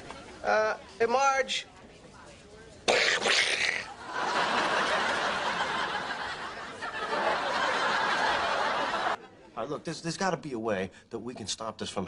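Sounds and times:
audience laughing: 3.8s - 9.5s.

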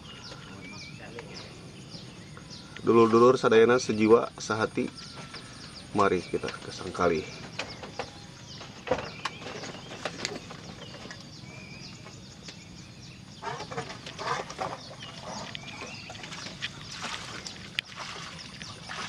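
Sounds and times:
low steady background noise: 0.0s - 19.0s
short bird calls: 4.8s - 6.5s.

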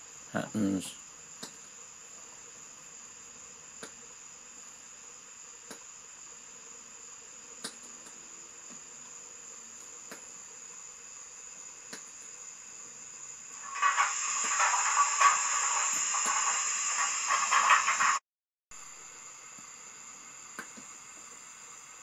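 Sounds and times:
model train whine: 12.6s - 18.2s
sharp clicks of model train: 13.6s - 18.2s.

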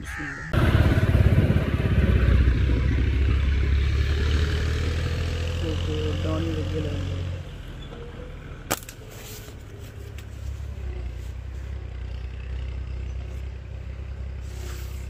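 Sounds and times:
slingshot rubber bands snapping: 8.7s - 9.1s.

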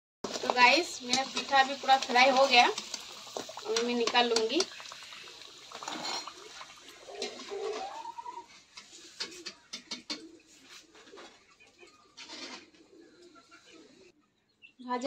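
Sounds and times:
spoon scraping metal pan: 0.2s - 4.8s, 5.6s - 10.2s, 12.2s - 12.8s
rising pitched call: 7.5s - 8.5s.

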